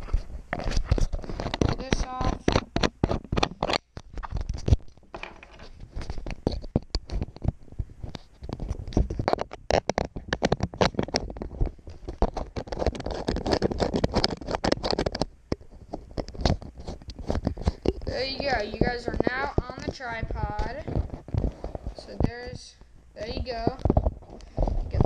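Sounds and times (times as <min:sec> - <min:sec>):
fingers scraping on plastic: 0:00.0 - 0:22.6, 0:23.2 - 0:25.0
plastic clicks and knocks: 0:00.6 - 0:18.1.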